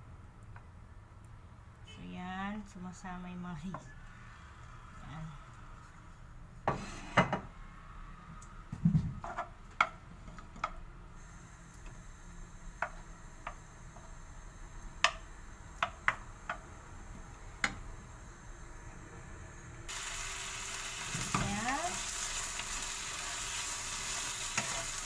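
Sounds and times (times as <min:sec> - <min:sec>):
oil sizzling: 0:19.9 - 0:25.0
wooden spoon scraping frying pan: 0:24.0 - 0:25.0.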